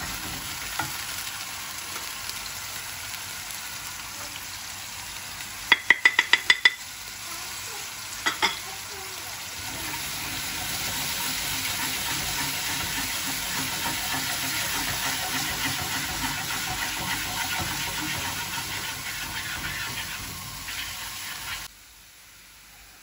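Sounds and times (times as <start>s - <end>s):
potatoes sizzling in oil: 0.0s - 23.0s
wooden spoon scraping pan: 10.0s - 21.7s.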